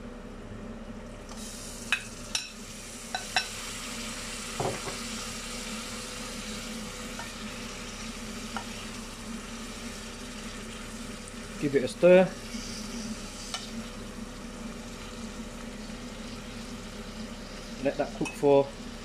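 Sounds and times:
chicken sizzling in oil: 1.3 - 19.0
sharp knocks in saucepan: 4.6 - 5.0.

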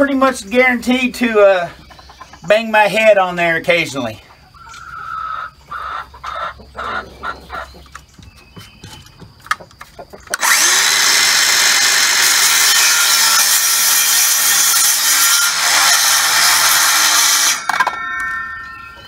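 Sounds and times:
circular saw cutting wood: 10.3 - 18.0.

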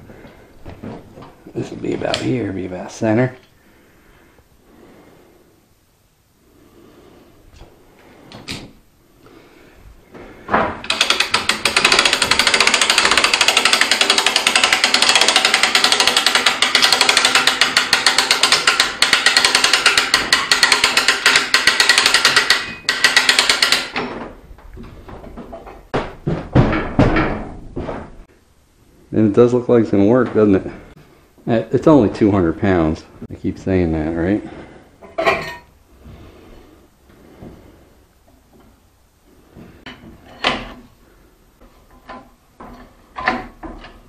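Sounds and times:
winch ratchet clicking: 10.8 - 24.0
knocks: 25.1 - 28.2.

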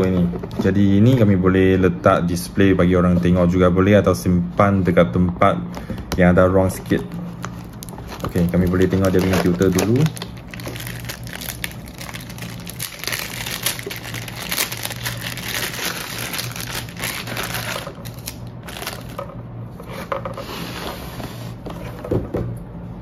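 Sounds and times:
low steady hum: 0.0 - 23.0
plastic bag crinkling: 7.0 - 19.4.

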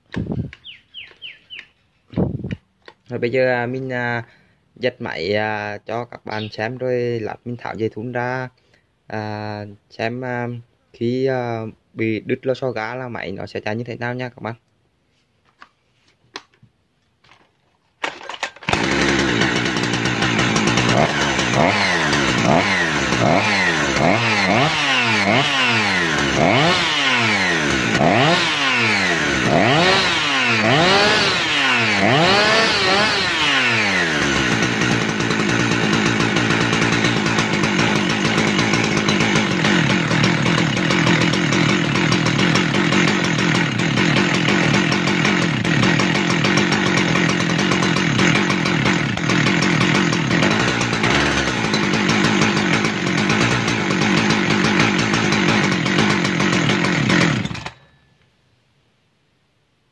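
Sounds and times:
chainsaw engine revving: 18.0 - 57.8.

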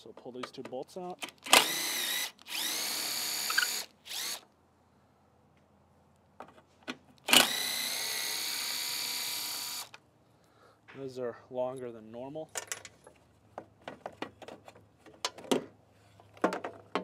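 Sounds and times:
power drill motor whine: 1.5 - 4.5, 7.3 - 10.0.

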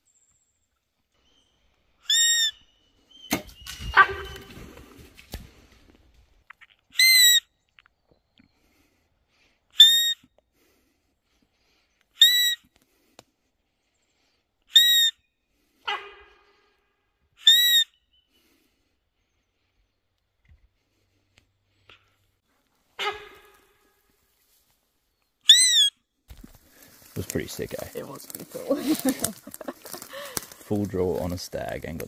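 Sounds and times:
deer call whistle blasts: 9.8 - 10.2, 12.2 - 12.6, 14.7 - 15.2, 17.4 - 17.9
rustling and scraping: 26.3 - 32.0.

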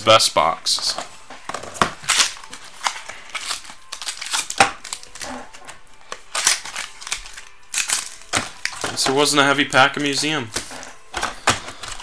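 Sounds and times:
wrapper tearing and crinkling: 1.8 - 9.3.

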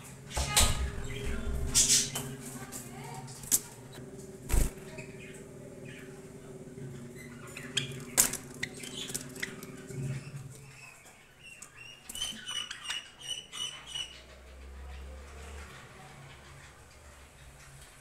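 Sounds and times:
low hum: 0.0 - 11.0
birds tapping and scratching: 0.0 - 18.0.

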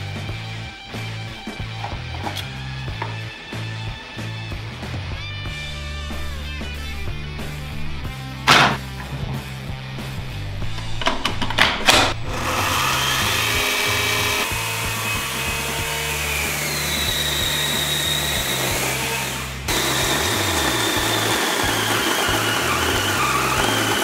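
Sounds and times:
electric chainsaw motor whining: 12.2 - 24.0.

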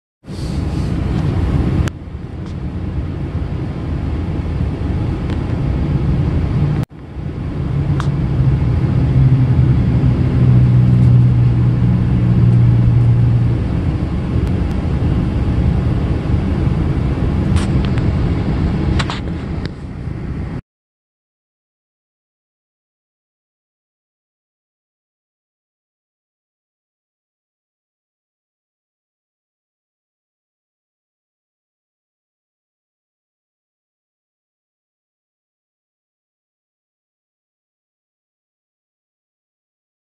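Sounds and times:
vehicle engine rumble: 0.3 - 20.6.

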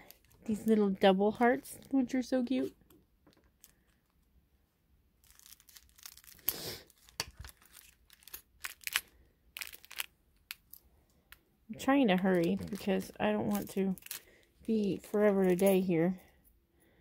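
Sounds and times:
plastic bags crinkling and tearing: 3.3 - 4.2, 5.2 - 10.9, 11.8 - 16.0.

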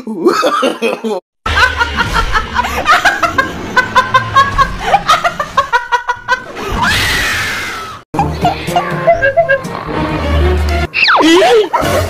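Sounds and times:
woman laughing: 8.2 - 9.8, 11.2 - 12.0.

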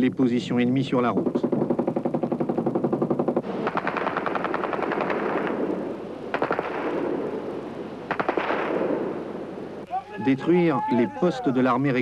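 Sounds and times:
automatic gunfire bursts: 1.5 - 5.6, 6.3 - 6.9, 8.1 - 8.8.

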